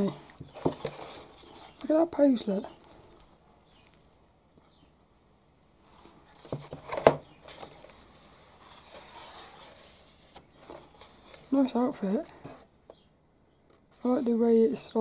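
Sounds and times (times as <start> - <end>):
paper page rustling: 6.0 - 11.7.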